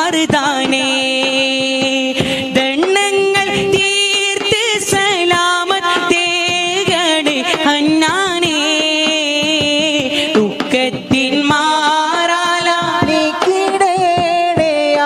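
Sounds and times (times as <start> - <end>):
man singing long ornamented notes: 0.0 - 2.2
steady percussion beat: 0.0 - 15.0.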